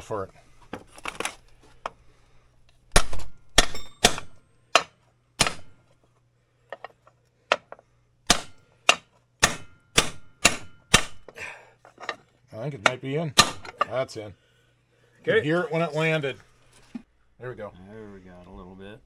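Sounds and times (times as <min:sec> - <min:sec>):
hammer striking metal: 0:02.9 - 0:05.8, 0:08.3 - 0:11.4, 0:12.8 - 0:13.9.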